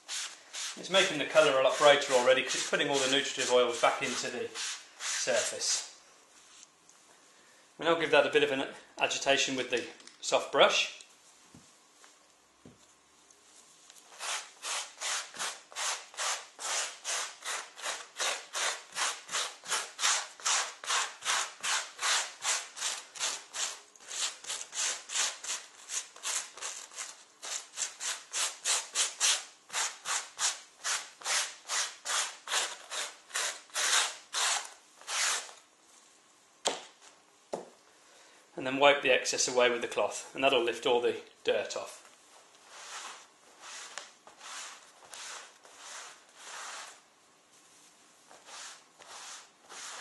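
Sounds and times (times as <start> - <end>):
brush scrubbing leather: 0.0 - 5.5, 42.7 - 47.0, 48.4 - 50.0.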